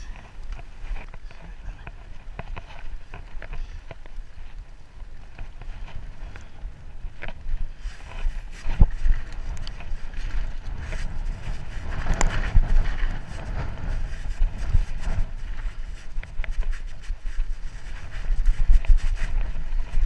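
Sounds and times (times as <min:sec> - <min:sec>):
bike tyres rumbling on dirt: 0:00.0 - 0:20.0
wind buffeting microphone: 0:00.0 - 0:20.0.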